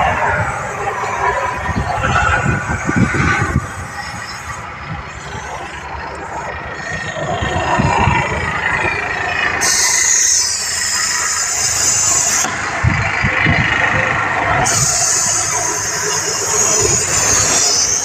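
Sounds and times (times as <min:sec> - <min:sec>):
air hissing out of tyre valve: 0:00.0 - 0:07.2, 0:09.5 - 0:12.5, 0:14.6 - 0:18.0
diesel engine running: 0:00.0 - 0:18.0.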